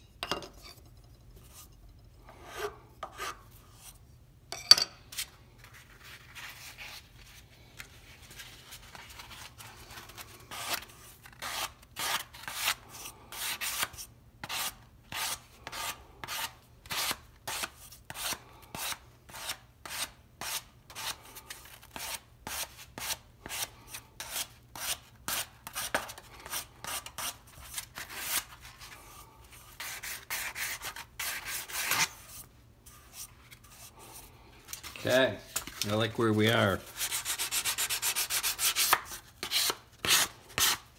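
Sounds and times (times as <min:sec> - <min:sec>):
sandpaper rubbing wood: 0:36.8 - 0:40.8.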